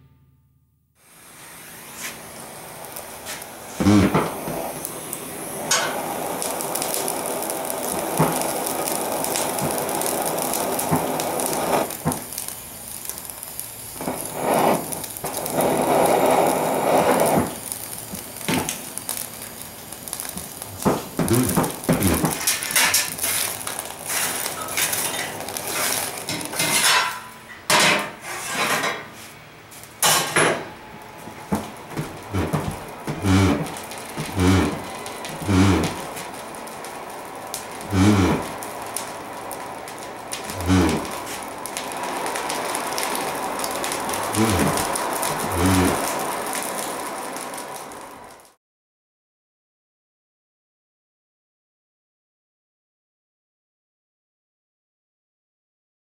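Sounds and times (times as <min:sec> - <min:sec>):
charcoal fire crackling: 0:01.0 - 0:48.6
low-pitched groan: 0:03.8 - 0:04.4, 0:20.7 - 0:22.4, 0:32.2 - 0:36.2, 0:37.8 - 0:38.7, 0:40.5 - 0:41.3, 0:44.1 - 0:46.2
charcoal clattering on steel pan: 0:05.6 - 0:06.1, 0:20.4 - 0:29.2, 0:30.0 - 0:30.7.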